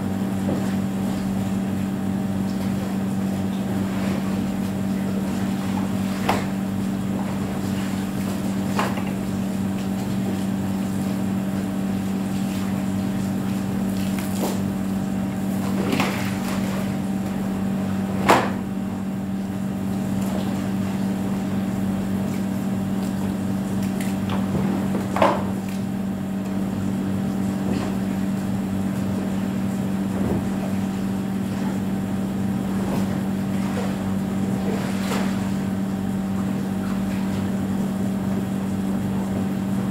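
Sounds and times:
steady mechanical hum: 0.0 - 39.9.

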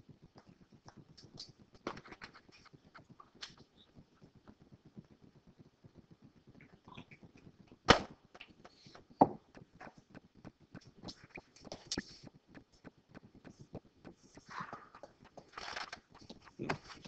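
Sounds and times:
faint clicks and taps: 0.0 - 17.0.

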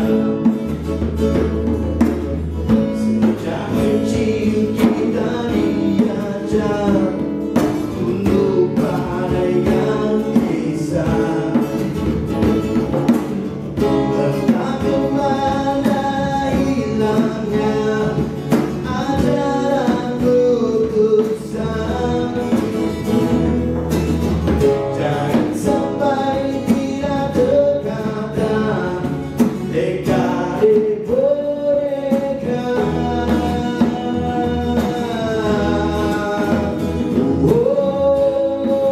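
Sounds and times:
man singing into a microphone: 0.0 - 0.8, 2.2 - 12.8, 13.8 - 23.8, 24.7 - 38.9
djembe played by hand: 0.0 - 38.9
strummed acoustic guitar: 0.0 - 38.9.

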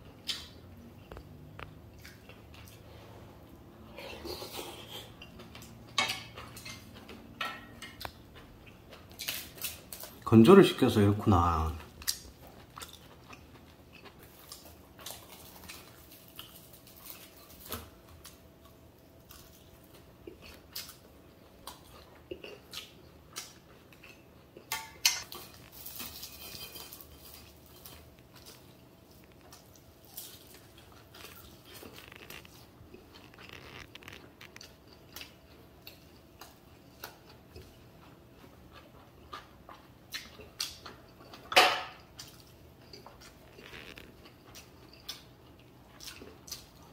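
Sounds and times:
soft chewing: 0.0 - 46.9
dishes clattering: 5.9 - 8.0, 24.7 - 27.5, 41.3 - 42.0.

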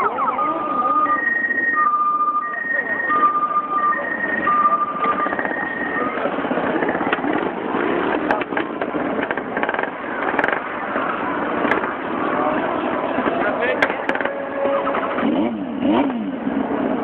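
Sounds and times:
two-tone hi-lo siren: 0.0 - 7.0.

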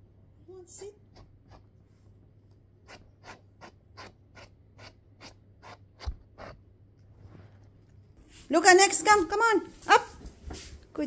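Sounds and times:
hand rubbing dog fur: 10.5 - 10.8.

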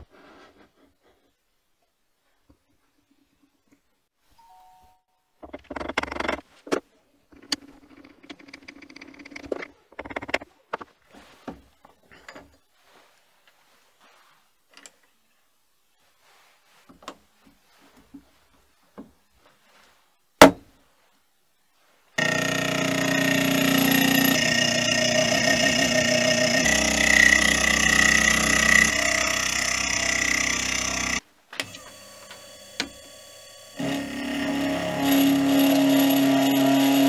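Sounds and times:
milling machine spindle whine: 22.2 - 37.0.

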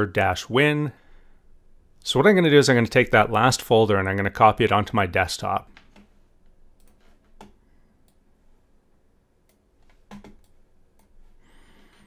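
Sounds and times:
computer mouse clicks: 5.7 - 8.2, 9.5 - 11.2.

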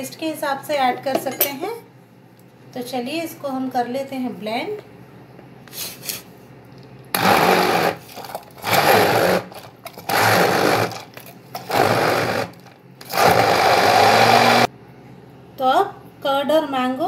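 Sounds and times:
hand blender running: 7.2 - 14.7.

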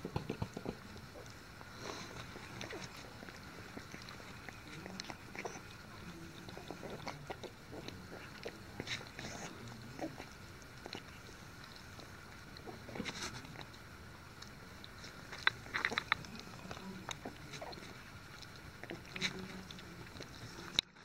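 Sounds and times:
puppies licking at bowl: 0.0 - 21.0.

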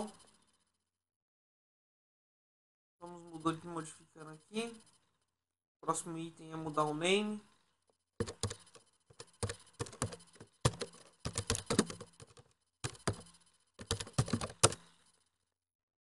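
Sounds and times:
computer keyboard typing: 8.2 - 15.0.

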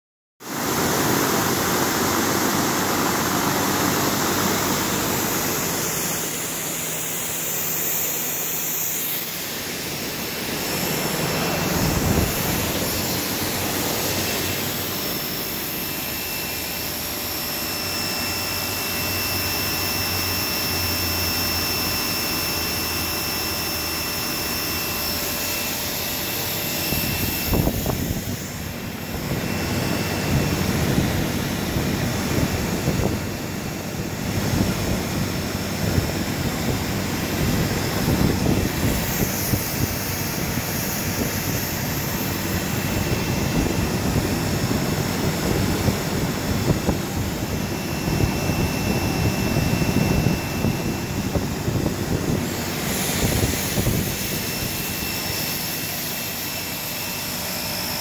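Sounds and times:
drum fan blowing: 0.4 - 58.0
thin steady whine: 0.4 - 58.0
pressure washer spraying water: 0.5 - 21.6.

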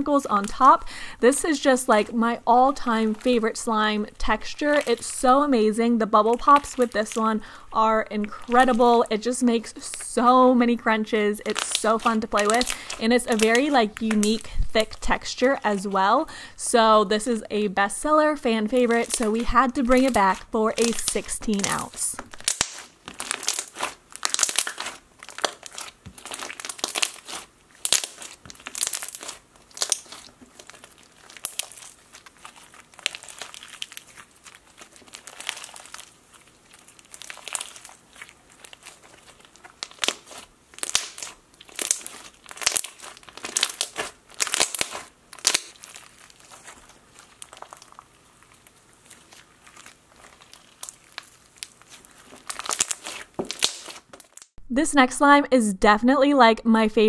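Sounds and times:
slime squishing and popping: 4.6 - 5.1, 11.5 - 14.4, 18.7 - 54.6.

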